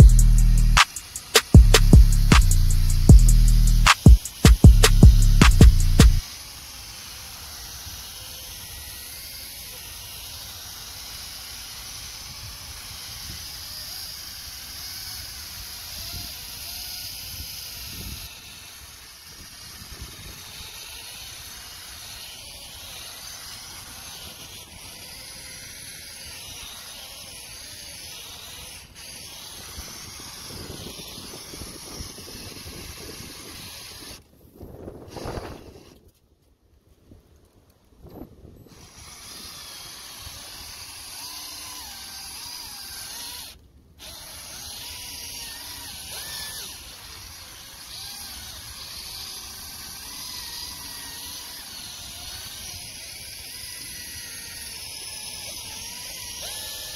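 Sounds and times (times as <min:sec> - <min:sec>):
cordless polisher running: 0:00.0 - 0:34.2.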